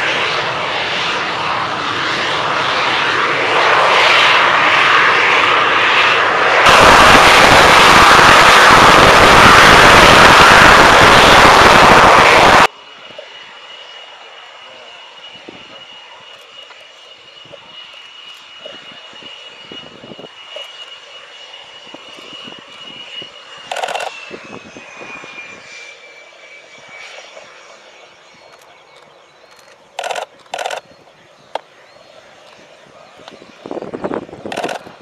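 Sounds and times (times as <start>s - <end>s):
loud rushes of noise: 0.0s - 12.8s, 21.5s - 25.9s, 32.4s - 35.0s
jet engine whining: 0.0s - 35.0s.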